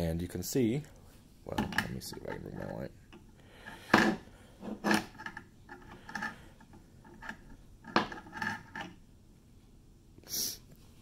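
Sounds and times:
hard objects clicking and knocking: 1.5s - 9.0s.

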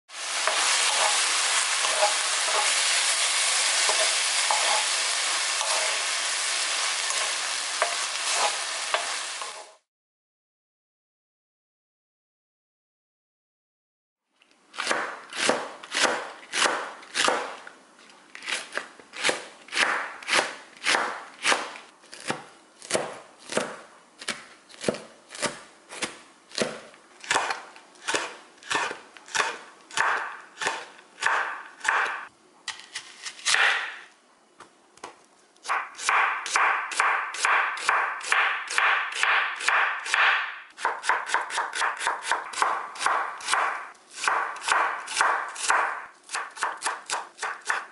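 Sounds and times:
knife chopping on wooden board: 14.8s - 17.6s, 18.4s - 32.3s, 33.4s - 34.0s, 35.6s - 47.9s.

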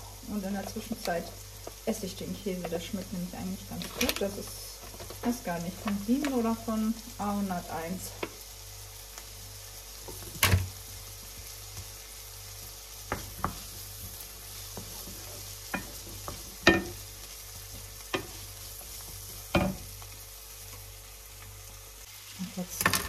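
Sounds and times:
vegetables sizzling in hot oil: 0.0s - 23.0s
wooden spoon knocking on pan: 13.0s - 17.0s, 17.6s - 19.9s.

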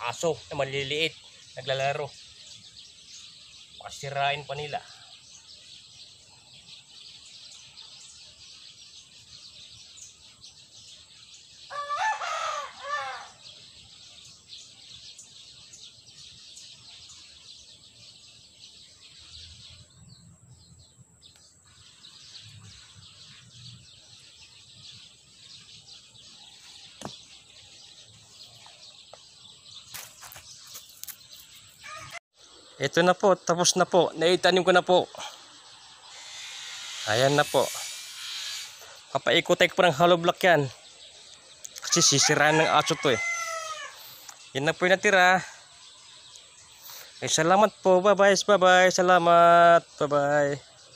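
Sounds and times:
high-pitched outdoor hiss: 0.0s - 50.9s
rooster crowing: 11.7s - 13.4s, 31.8s - 32.2s, 41.8s - 44.1s.

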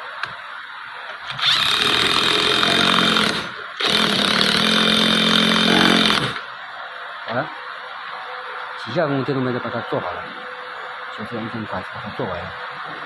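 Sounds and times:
electric wrench running: 1.3s - 6.5s.

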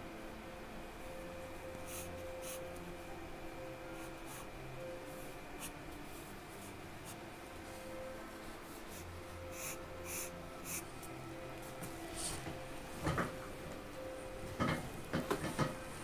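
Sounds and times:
faint steady hum: 0.0s - 16.0s
pencil scratching on paper: 9.0s - 10.9s.

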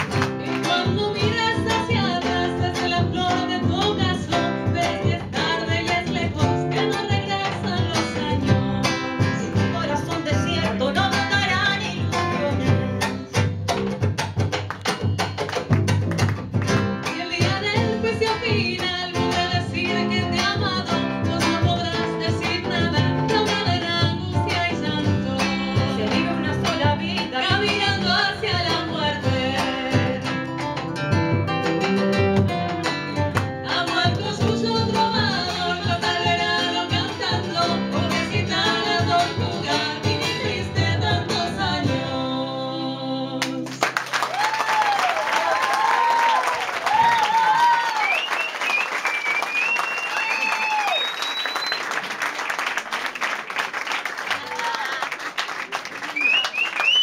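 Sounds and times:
acoustic and electric guitar: 0.0s - 44.0s
women singing a duet: 0.6s - 12.9s, 17.1s - 30.4s, 33.6s - 43.8s.

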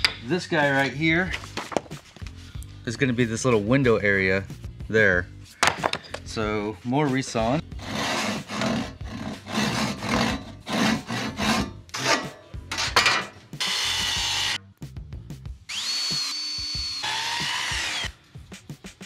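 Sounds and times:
hand saw rasping strokes: 7.7s - 12.4s.

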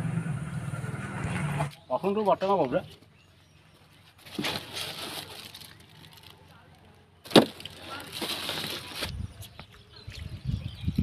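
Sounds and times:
plastic sack rustling: 4.1s - 6.4s, 7.2s - 9.2s.

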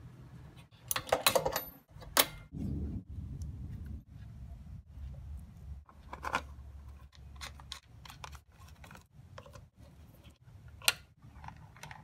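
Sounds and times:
low hum: 2.4s - 7.1s.

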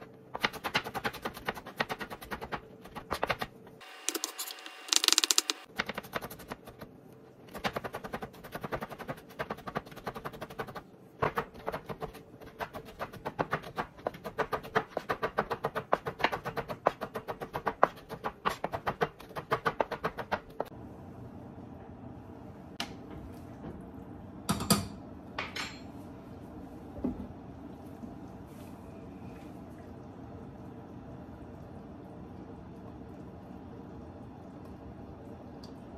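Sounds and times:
steady low hum: 20.6s - 35.9s.

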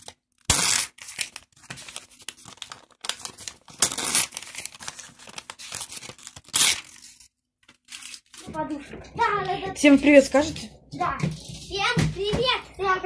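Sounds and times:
paper pages tearing: 0.0s - 8.4s.

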